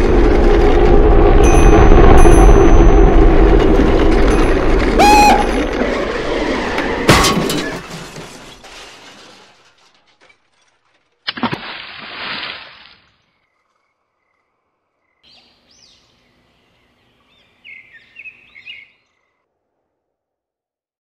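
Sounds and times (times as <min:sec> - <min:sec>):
clattering shattering crash: 0:05.7 - 0:11.1
splash into water: 0:11.2 - 0:13.3.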